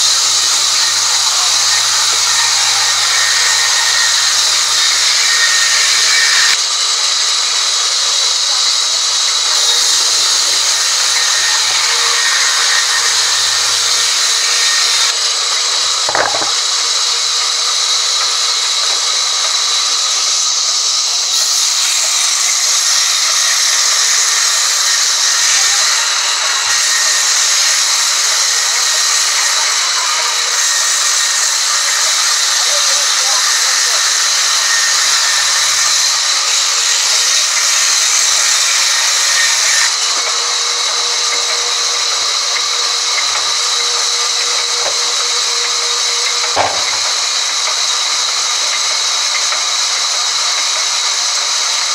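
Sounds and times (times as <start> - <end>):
band saw cutting timber: 0.0 - 51.9
sharp knock: 16.1 - 16.6, 46.6 - 47.1.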